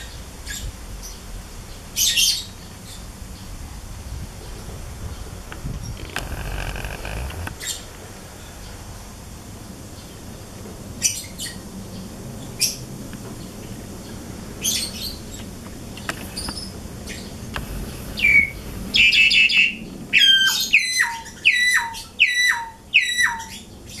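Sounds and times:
starling chirping: 18.0 - 23.6.

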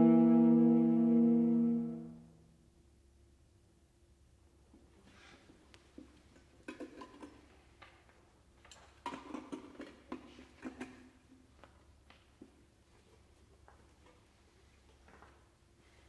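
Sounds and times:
faint instrument tones: 0.0 - 2.6.

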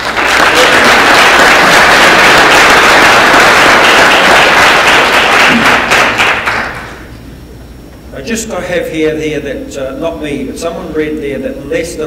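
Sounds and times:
audience applause: 0.0 - 7.0.

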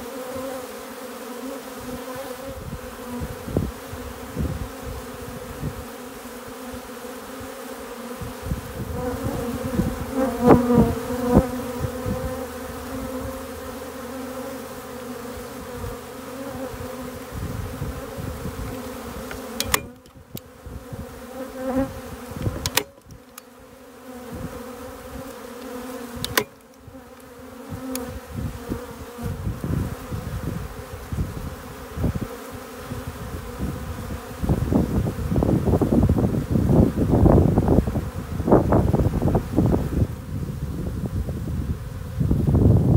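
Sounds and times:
bees buzzing: 0.0 - 42.3
sharp clicks: 19.3 - 20.5, 22.4 - 23.5, 26.2 - 26.8.

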